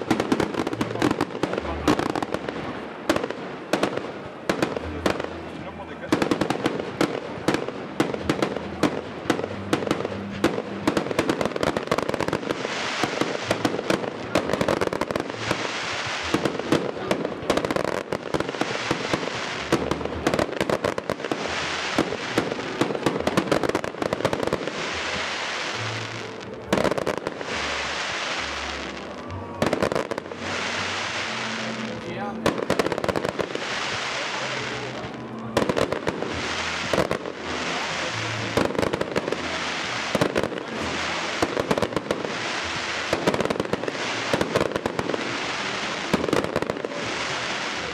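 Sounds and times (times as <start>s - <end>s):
fireworks bangs and cracks: 0.0s - 47.9s
fireworks crackling hiss: 0.0s - 47.9s.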